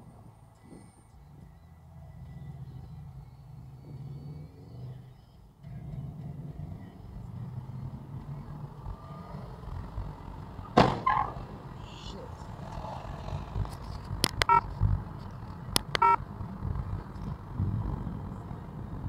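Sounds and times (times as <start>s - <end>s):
car engine: 0.0s - 19.0s
road noise inside car: 0.0s - 19.0s
loud sharp knock: 10.8s - 11.1s.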